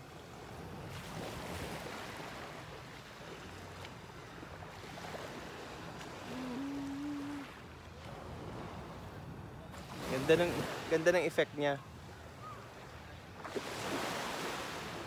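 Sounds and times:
sea waves washing onto sand: 0.0 - 9.0
wind on microphone: 5.8 - 8.8.

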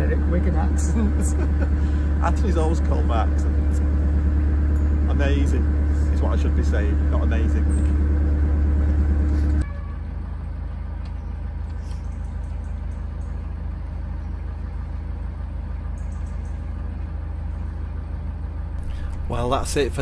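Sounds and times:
boat diesel engine rumble: 0.0 - 20.0.

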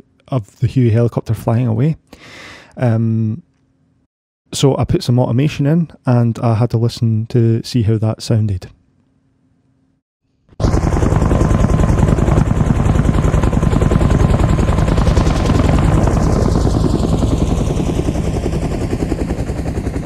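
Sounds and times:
helicopter rotor blade chop: 10.6 - 20.0.

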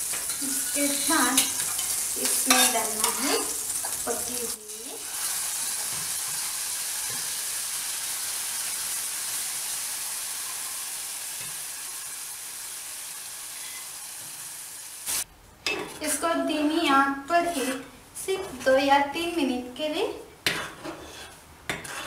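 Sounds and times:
spices sizzling in hot oil: 0.0 - 15.3.

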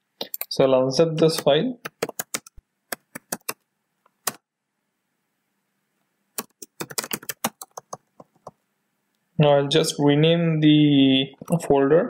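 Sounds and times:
keyboard typing: 1.3 - 4.4, 6.4 - 8.6.

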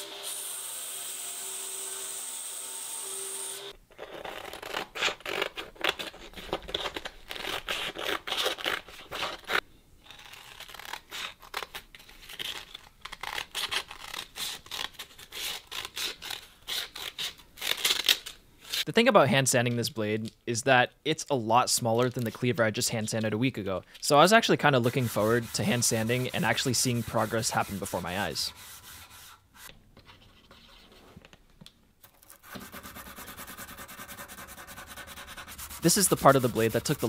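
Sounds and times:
scissors cutting sandpaper: 32.1 - 37.0.

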